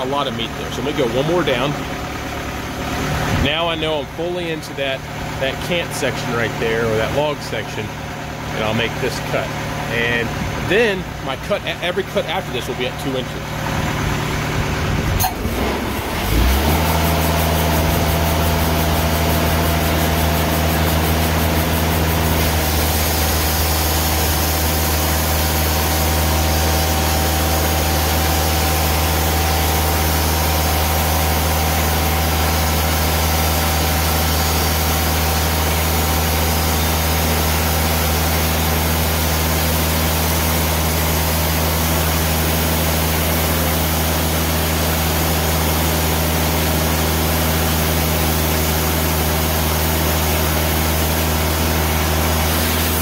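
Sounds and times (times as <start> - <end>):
sawmill engine running: 0.0 - 53.0
band blade sawing log: 15.2 - 53.0.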